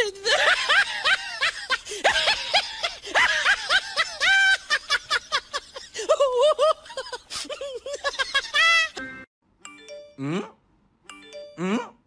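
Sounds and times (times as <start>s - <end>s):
high-pitched giggling laughter: 0.2s - 9.0s.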